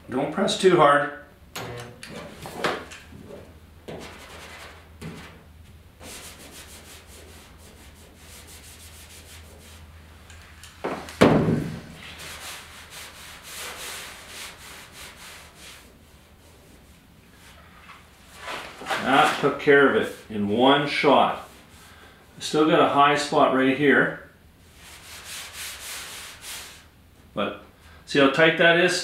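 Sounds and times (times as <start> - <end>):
loud thump: 11.2 - 12.0.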